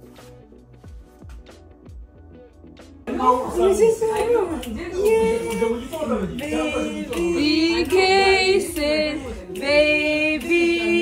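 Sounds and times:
woman singing slow song: 4.7 - 11.0.

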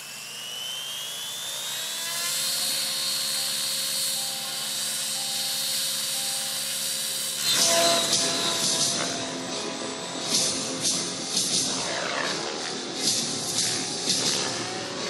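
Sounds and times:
model helicopter motor whine: 0.0 - 15.0
rotor whirring: 0.0 - 15.0.

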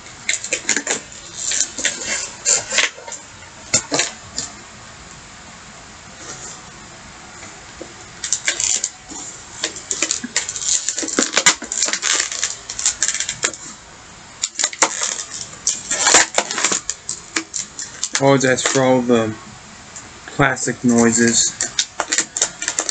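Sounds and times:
plastic packaging crackling: 0.0 - 4.6, 7.8 - 13.8, 14.4 - 19.2, 20.9 - 22.9.

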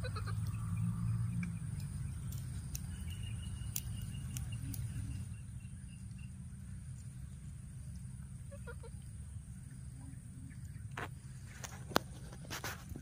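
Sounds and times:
faint sharp clicks: 3.6 - 5.0.

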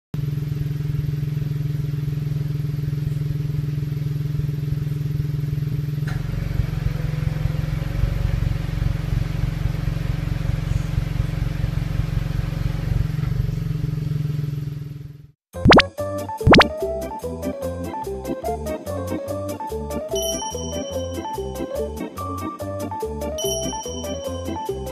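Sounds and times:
car exhaust idling: 0.2 - 15.0.

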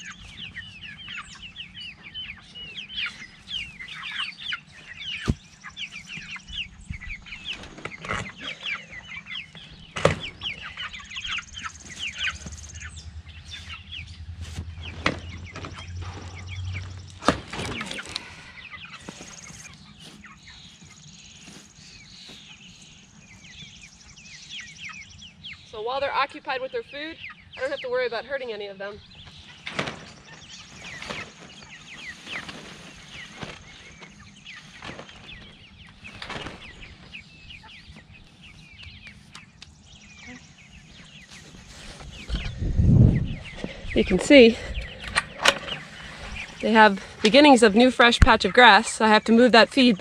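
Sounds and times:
chicks peeping: 0.0 - 50.0.

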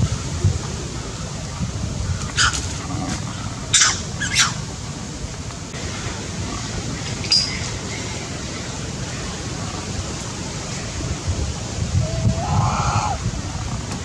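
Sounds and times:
wind buffeting microphone: 0.0 - 14.0
macaque call: 2.2 - 4.7, 12.0 - 13.8.

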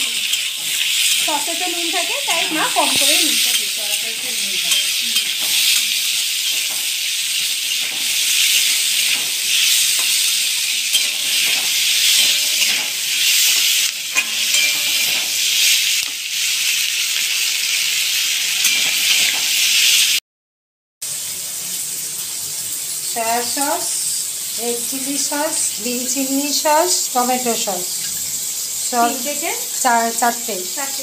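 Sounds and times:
vegetables sizzling in oil: 0.0 - 20.2, 21.0 - 31.0
spatula clinking against pan: 3.0 - 6.9, 10.0 - 12.9, 14.1 - 15.3, 18.6 - 19.4.

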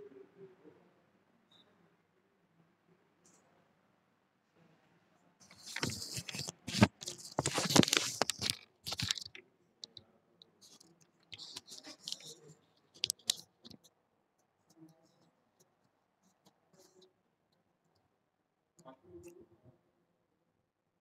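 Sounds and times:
rustling and scraping: 5.4 - 9.4, 10.7 - 12.4, 13.0 - 13.8
sharp clicks: 13.0 - 13.4.

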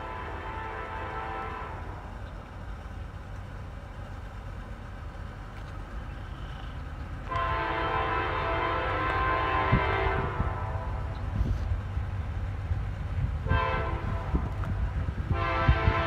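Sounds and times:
locomotive air horn chord: 0.0 - 2.1, 7.3 - 11.2, 13.4 - 14.5, 15.3 - 16.0
low train rumble: 0.0 - 16.0.

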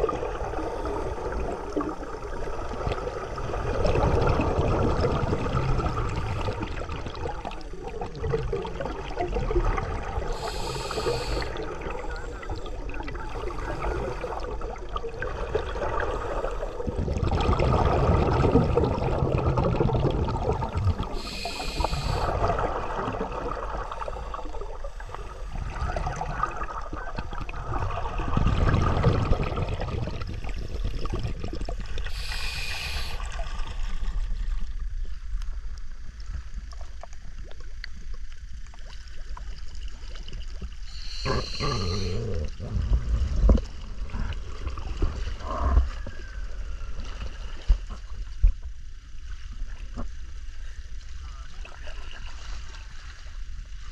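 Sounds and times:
muffled underwater gurgling: 0.0 - 33.4, 40.8 - 47.0
hissing bubble bursts: 8.1 - 14.8, 15.4 - 24.6, 27.9 - 33.5, 40.9 - 44.3.

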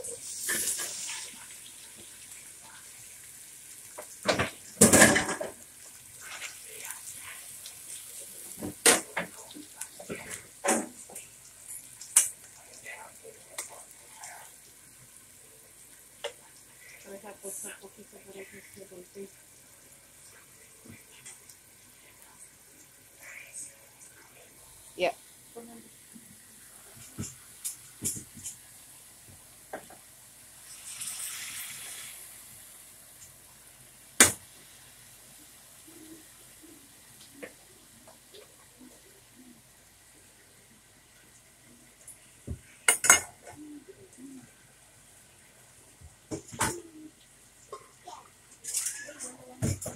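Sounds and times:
cheese sizzling: 0.0 - 49.9
thick sauce pouring and splashing: 30.6 - 32.3.

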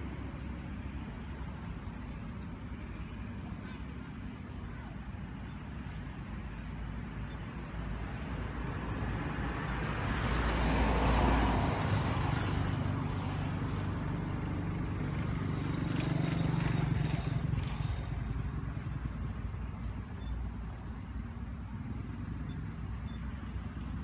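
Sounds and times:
vehicle passing: 7.8 - 24.0.

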